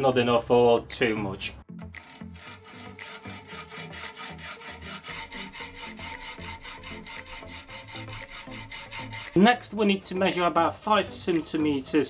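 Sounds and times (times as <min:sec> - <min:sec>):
hacksaw cutting metal rod: 0:02.0 - 0:09.7.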